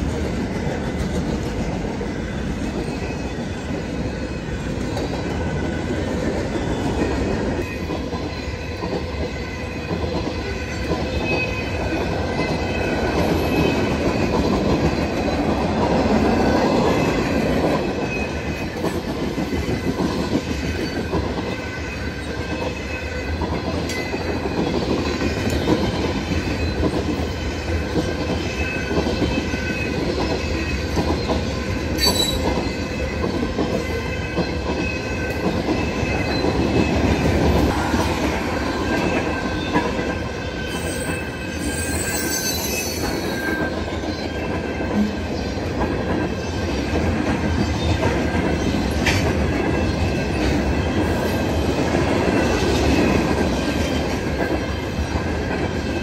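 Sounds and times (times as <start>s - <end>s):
train cars rumbling on rails: 0.0s - 56.0s
high wheel squeal: 32.0s - 32.5s, 40.5s - 44.4s.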